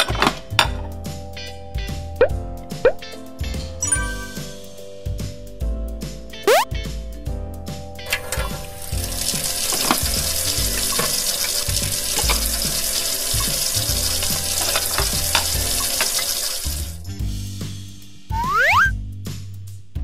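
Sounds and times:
tap water running into sink: 8.1 - 17.0.

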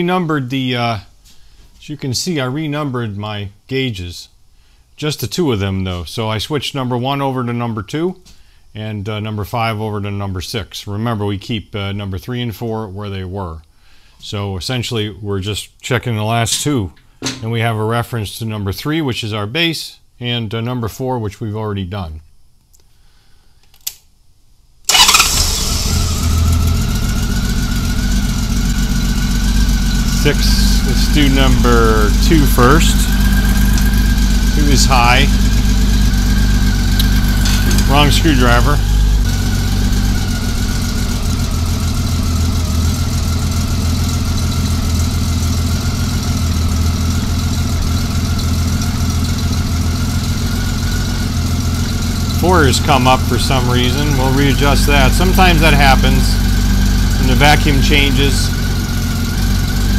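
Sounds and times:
click: 22.6 - 22.9, 23.6 - 24.1, 37.0 - 37.9
engine idling: 24.9 - 59.9.

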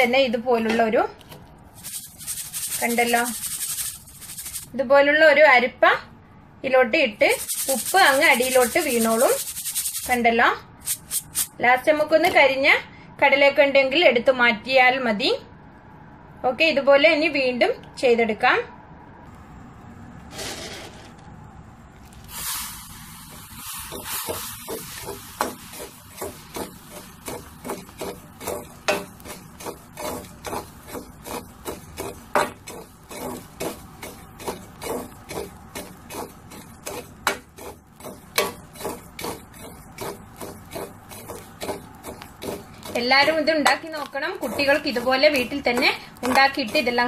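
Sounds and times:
metal ladle scraping through salt: 1.7 - 4.8, 7.2 - 10.2, 10.8 - 11.6, 22.2 - 47.0.

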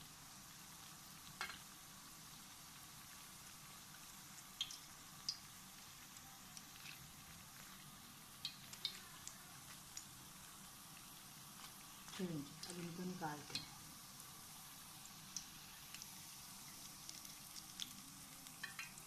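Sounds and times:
dough sizzling in oil: 0.0 - 19.0
spatula clicking on pan: 18.6 - 19.0.

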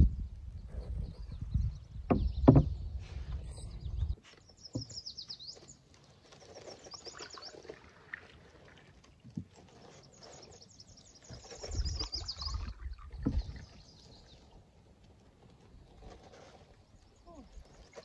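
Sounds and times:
songbird singing: 0.5 - 7.8, 9.8 - 14.6
sharp knocks: 2.1 - 2.8.

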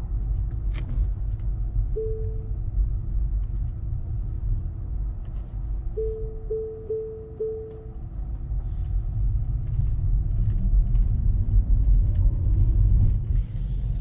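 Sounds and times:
road and tyre rumble: 0.0 - 14.0
electronic tones: 2.0 - 2.5, 6.0 - 7.9.

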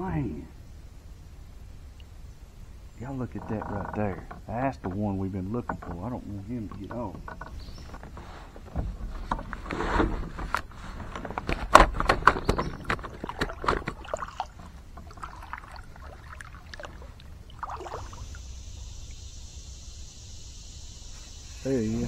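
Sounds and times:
paddle knocking plastic hull: 3.3 - 18.1
paddle strokes splashing water: 11.9 - 18.8
insect drone: 14.1 - 22.0.

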